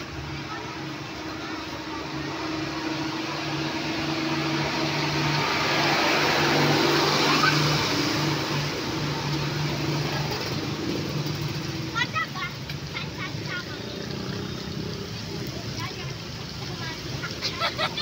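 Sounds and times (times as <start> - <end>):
hot oil sizzling in a wok: 9.4 - 17.4.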